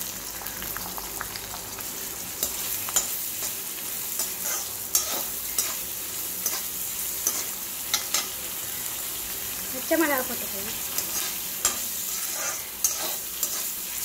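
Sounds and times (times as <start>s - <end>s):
onions sizzling in hot oil: 0.0s - 14.0s
metal spatula scraping pan: 4.2s - 8.3s, 10.9s - 14.0s.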